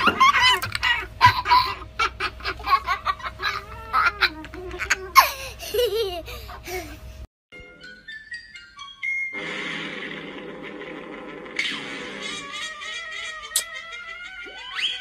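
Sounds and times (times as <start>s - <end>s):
cockatoo laughing calls: 12.2s - 15.0s.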